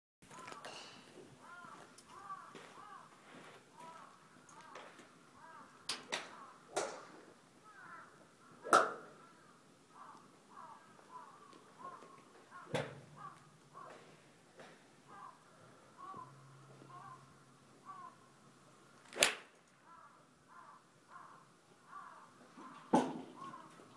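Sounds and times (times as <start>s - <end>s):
birds calling: 0.2s - 23.9s
golf clubs striking balls: 0.4s - 1.1s, 5.9s - 7.3s, 8.6s - 9.2s, 19.1s - 19.7s, 22.8s - 23.4s.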